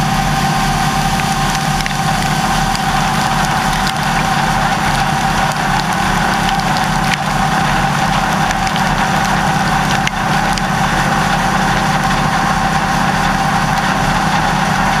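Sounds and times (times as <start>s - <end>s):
combine harvester drone: 0.0s - 15.0s
constant machine whine: 0.0s - 15.0s.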